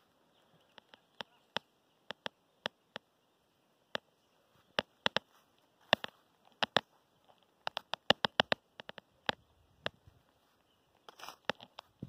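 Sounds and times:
sharp irregular clicks: 0.6 - 3.1, 4.7 - 10.0.

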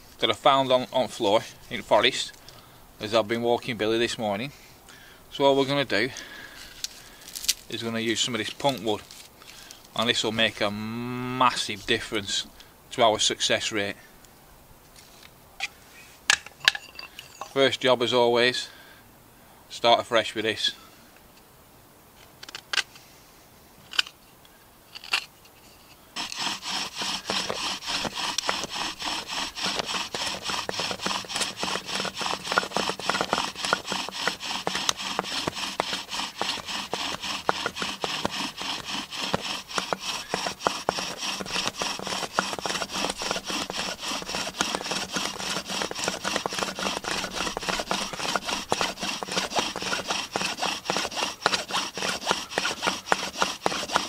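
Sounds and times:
wood-on-wood rubbing: 6.6 - 10.8, 25.9 - 54.0
knife shaving wood: 26.2 - 54.0.

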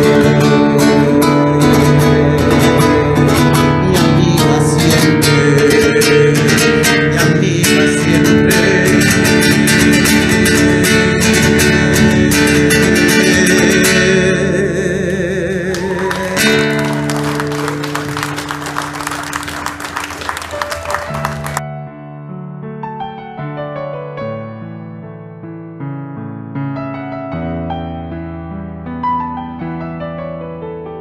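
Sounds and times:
acoustic guitar strumming: 0.0 - 21.6.

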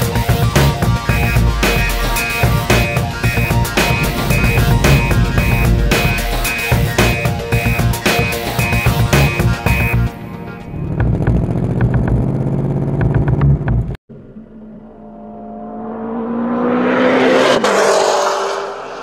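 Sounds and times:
car engine revving: 0.0 - 9.9, 10.7 - 19.0
car passing: 1.6 - 7.9, 14.1 - 19.0.

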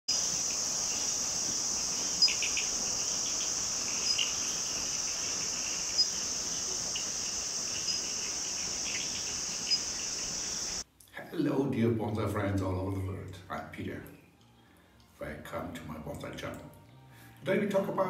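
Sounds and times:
insects trilling: 0.1 - 10.8
short insect chirps: 0.1 - 10.8.

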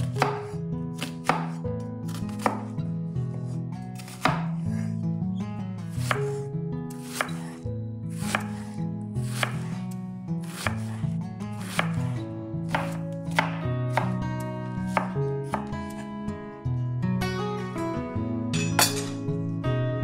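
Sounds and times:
knife cutting on cutting board: 0.0 - 2.7, 4.0 - 4.9, 6.0 - 14.2, 14.9 - 16.0
soft background music: 0.0 - 20.0.

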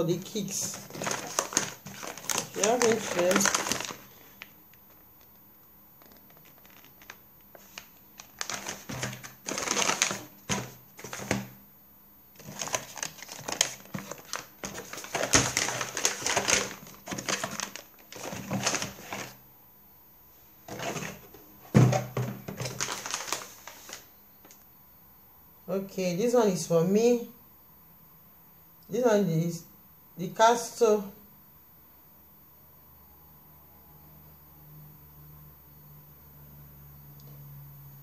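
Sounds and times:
cardboard and plastic rustling: 0.4 - 5.0, 6.0 - 11.5, 12.4 - 19.4, 20.7 - 24.1.

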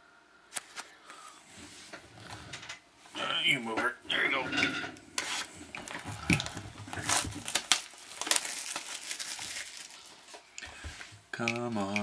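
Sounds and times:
plastic shrink-wrap crinkling: 5.4 - 10.6.

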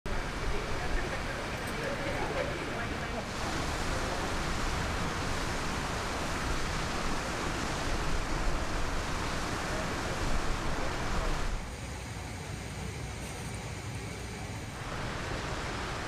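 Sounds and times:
outdoor rushing noise: 0.1 - 16.0.

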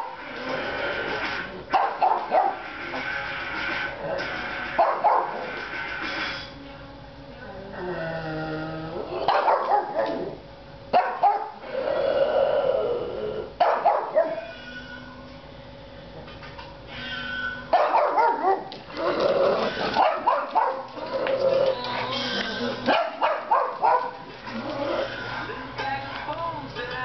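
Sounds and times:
dog barking and yipping: 1.7 - 2.7, 4.8 - 5.5, 9.3 - 11.6, 13.6 - 14.5, 17.7 - 18.7, 19.9 - 21.0, 22.8 - 24.2.

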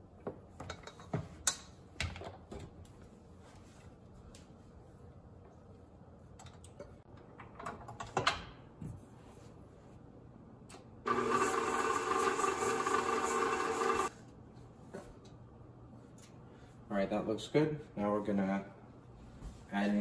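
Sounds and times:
stand mixer motor running: 11.1 - 14.1.

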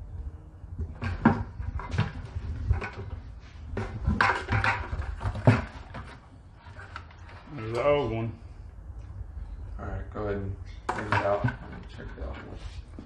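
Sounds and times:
plastic and metal clunks and rattles: 0.8 - 7.5, 10.8 - 12.6.

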